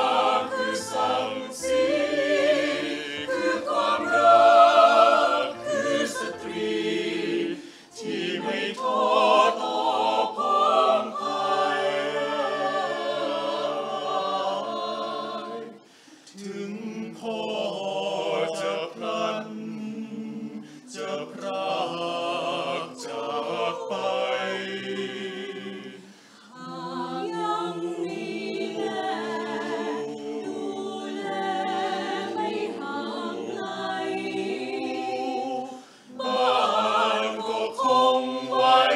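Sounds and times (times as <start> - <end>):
mixed choir singing a cappella: 0.0 - 38.9.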